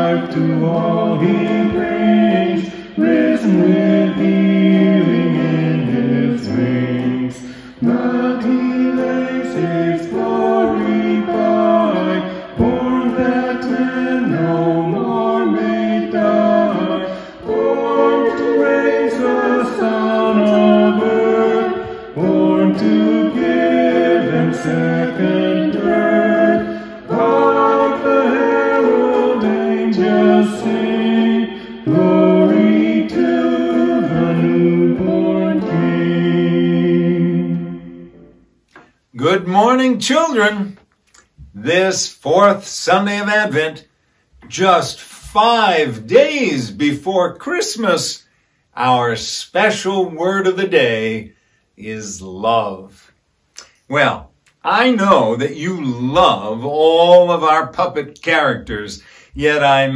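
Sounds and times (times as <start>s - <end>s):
man and woman singing: 0.0s - 37.8s.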